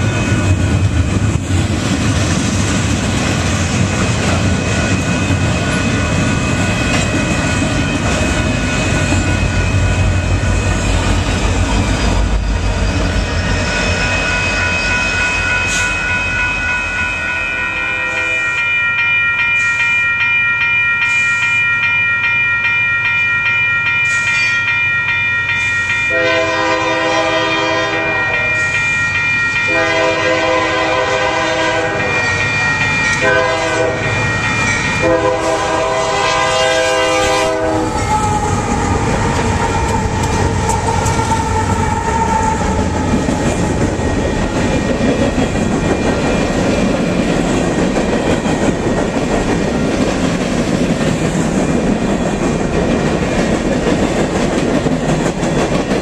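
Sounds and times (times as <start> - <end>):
railroad crossing bells ringing: 0.0 - 56.0
diesel locomotive horn: 17.7 - 18.6, 26.1 - 28.6, 29.7 - 32.4, 33.2 - 34.1, 35.0 - 39.0.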